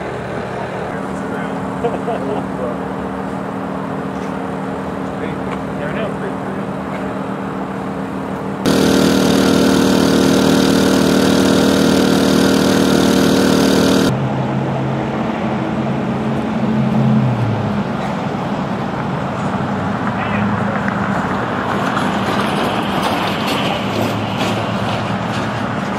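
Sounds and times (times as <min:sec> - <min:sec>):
engine hum with hiss: 0:00.0 - 0:25.9
low engine drone: 0:08.7 - 0:14.2.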